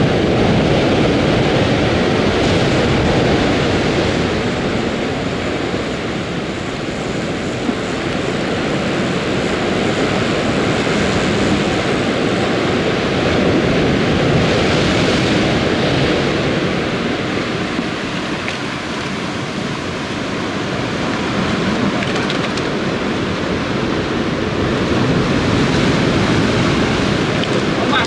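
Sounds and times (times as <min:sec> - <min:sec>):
surf breaking on rocky shore: 0:00.0 - 0:28.0.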